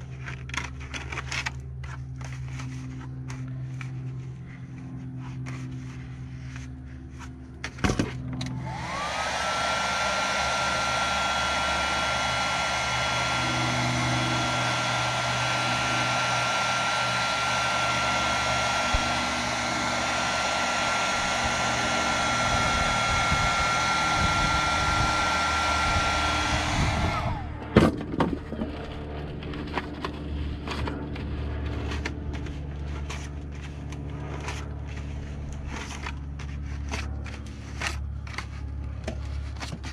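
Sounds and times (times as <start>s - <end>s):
hot-air blower running: 0.0s - 39.9s.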